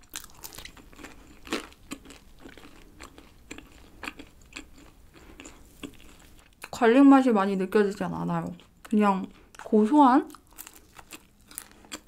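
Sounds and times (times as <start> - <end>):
crisp crunches of chewing: 0.0 - 6.7, 10.3 - 12.0.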